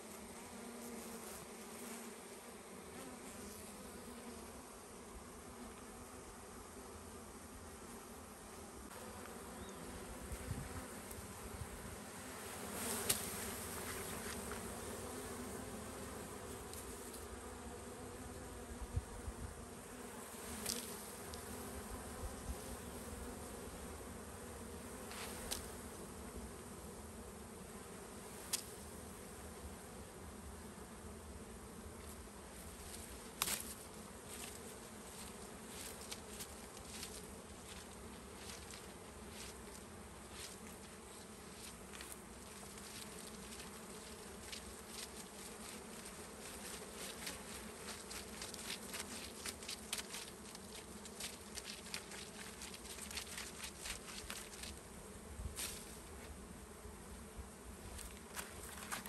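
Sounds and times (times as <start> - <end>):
bees buzzing: 0.0 - 59.0.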